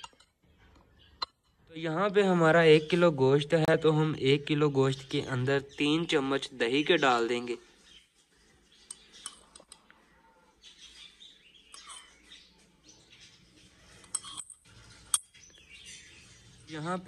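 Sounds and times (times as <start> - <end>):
faint bird chirps: 0.0 - 17.0
metal spoon clinking on ceramic bowl: 11.8 - 12.2.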